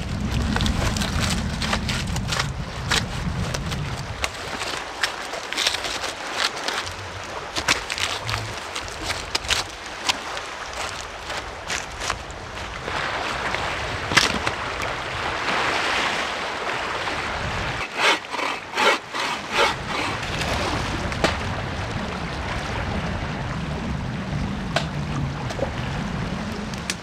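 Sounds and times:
bow saw cutting log: 0:17.7 - 0:21.4.

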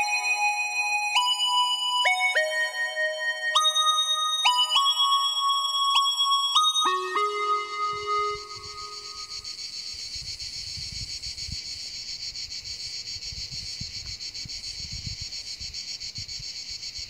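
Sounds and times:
cicadas buzzing: 0:03.7 - 0:17.0
wind rumbling on microphone: 0:09.8 - 0:17.0.

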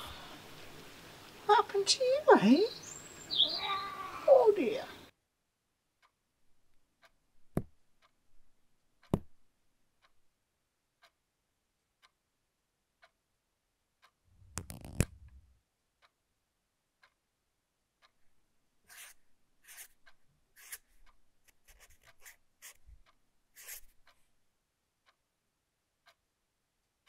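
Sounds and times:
clock ticking softly: 0:06.0 - 0:14.3, 0:15.2 - 0:24.4, 0:25.0 - 0:27.0.

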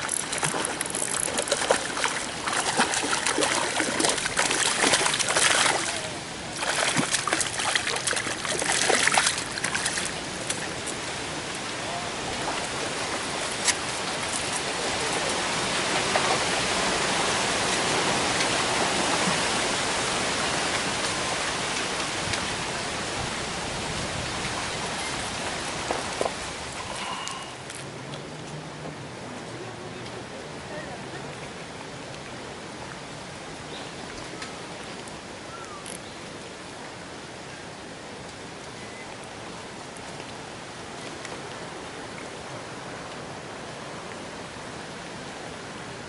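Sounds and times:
fish splashing in a net: 0:00.0 - 0:10.8.

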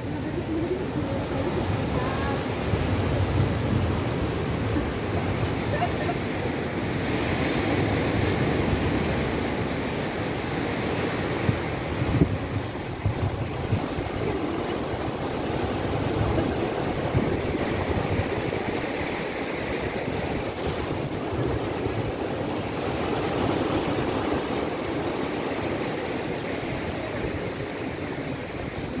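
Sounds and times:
surf breaking on beach: 0:00.0 - 0:29.0
wind buffeting microphone: 0:00.0 - 0:29.0.

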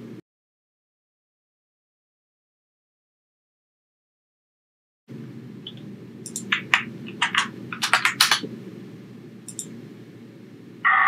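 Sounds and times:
steady low hum: 0:00.0 - 0:00.2, 0:05.1 - 0:10.9
keyboard key clicks: 0:05.7 - 0:08.4, 0:09.5 - 0:09.7.

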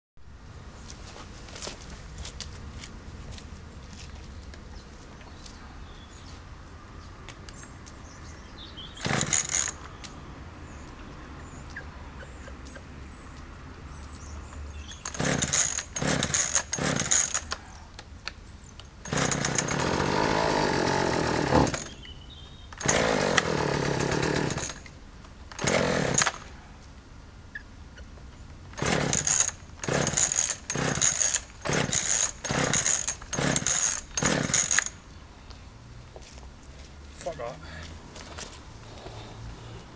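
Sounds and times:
chainsaw engine bursts: 0:09.0 - 0:09.8, 0:14.9 - 0:17.6, 0:19.0 - 0:22.0, 0:22.7 - 0:24.9, 0:25.5 - 0:26.5, 0:28.8 - 0:35.0.

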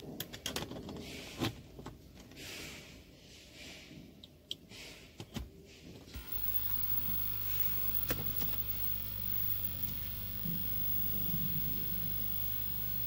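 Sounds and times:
steady low hum: 0:06.2 - 0:13.0.

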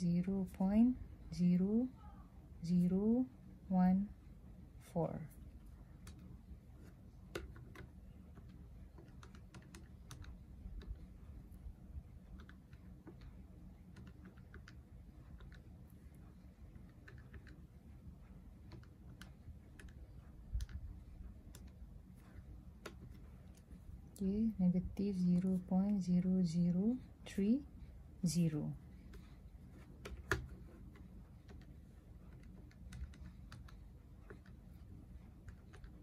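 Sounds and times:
low hum: 0:00.0 - 0:36.0
calculator keys clicking: 0:07.2 - 0:11.2, 0:12.2 - 0:15.7, 0:16.7 - 0:17.6, 0:18.6 - 0:21.9, 0:29.8 - 0:34.6, 0:35.3 - 0:36.0.

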